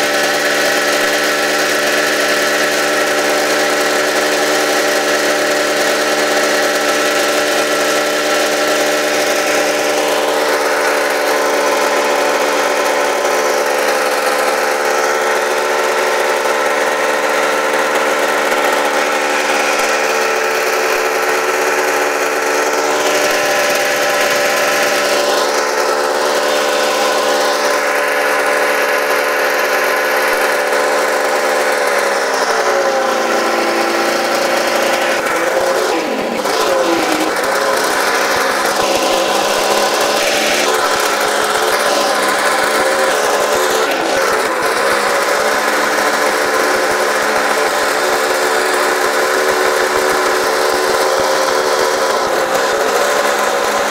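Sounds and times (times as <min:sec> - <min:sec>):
snowmobile engine running: 0:00.0 - 0:53.9.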